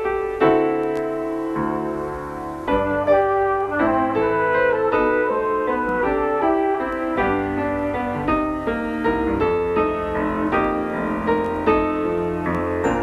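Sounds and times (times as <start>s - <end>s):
keyboard melody: 0.0s - 13.0s.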